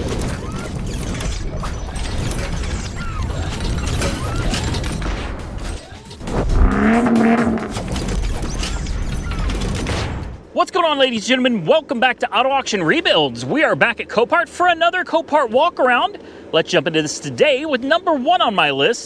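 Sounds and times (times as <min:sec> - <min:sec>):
louder pitched sound: 0:06.2 - 0:07.9
mechanical clattering and ratcheting: 0:07.5 - 0:10.2.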